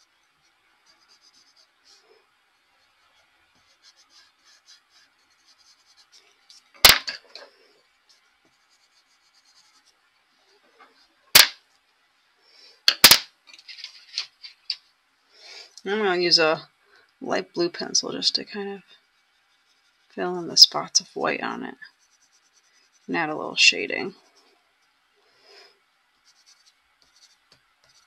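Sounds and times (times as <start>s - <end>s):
pencil scratching on paper: 0.8s - 2.2s, 2.8s - 6.7s, 8.1s - 10.0s, 19.1s - 23.4s, 26.2s - 28.0s
pencils knocking on desk: 6.8s - 7.2s.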